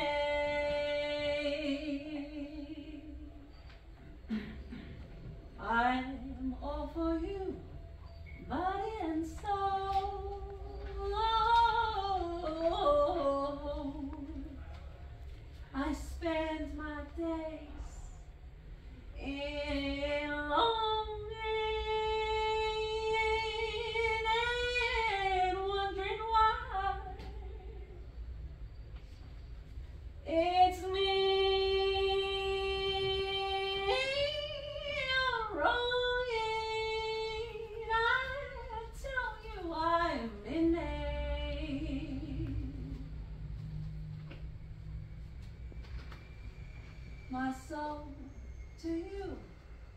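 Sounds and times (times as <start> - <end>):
woman singing unaccompanied: 0.0 - 3.5, 5.6 - 7.7, 8.5 - 14.6, 15.7 - 18.2, 19.2 - 28.0, 30.2 - 43.2.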